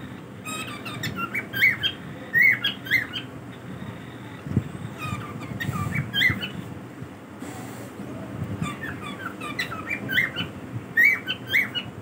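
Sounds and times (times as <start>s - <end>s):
cockatiels chirping: 0.4s - 4.1s, 4.9s - 6.7s, 8.6s - 12.0s.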